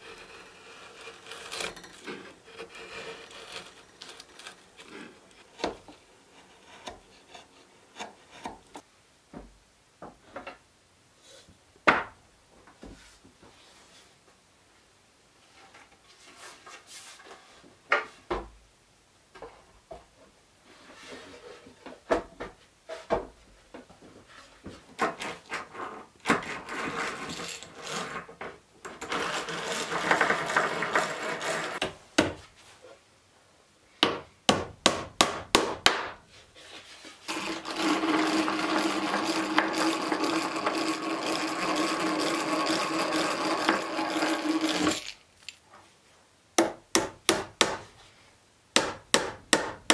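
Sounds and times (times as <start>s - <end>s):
hand drill whirring and grinding: 29.0s - 31.8s, 37.3s - 45.2s.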